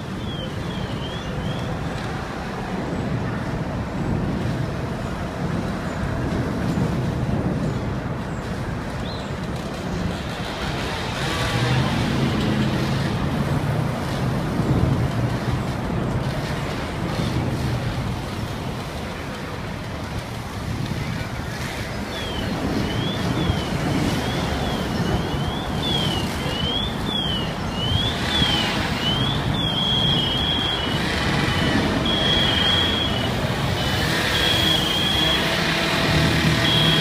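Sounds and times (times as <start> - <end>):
fire engines running: 0.0 - 37.0
electronic siren: 28.1 - 37.0.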